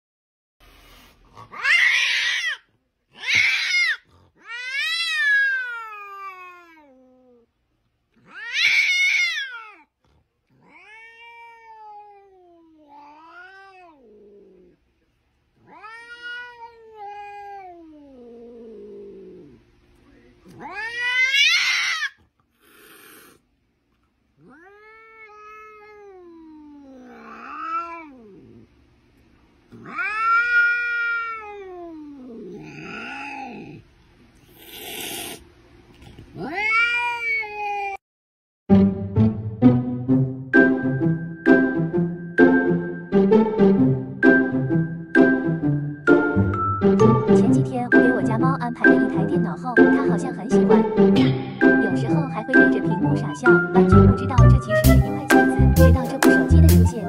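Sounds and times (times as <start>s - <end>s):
cat meowing and yowling: 1.6s - 7.4s, 8.2s - 9.9s, 10.6s - 14.3s, 15.6s - 18.7s, 20.6s - 22.2s, 24.4s - 28.4s, 29.8s - 33.8s, 36.4s - 38.0s.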